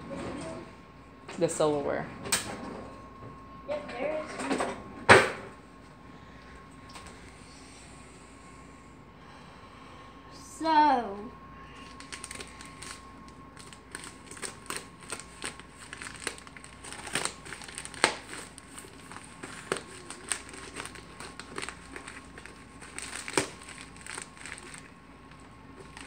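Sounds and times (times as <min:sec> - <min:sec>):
plastic crinkling: 0:11.8 - 0:26.0.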